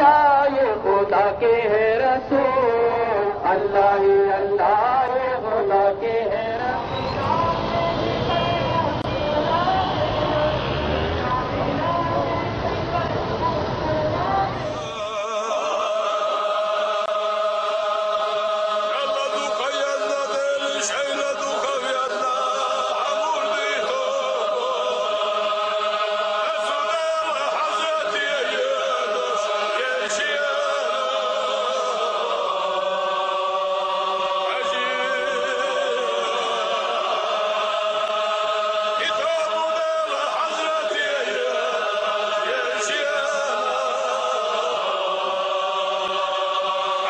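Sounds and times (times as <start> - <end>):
men chanting in unison: 14.7 - 47.0.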